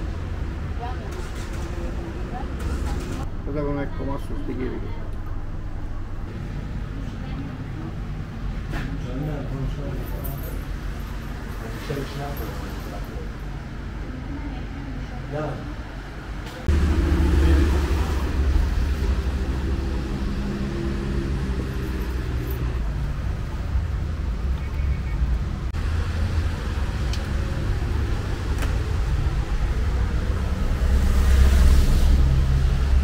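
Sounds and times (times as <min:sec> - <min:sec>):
road traffic rumbling: 0:00.0 - 0:33.0
vehicle passing: 0:16.6 - 0:33.0.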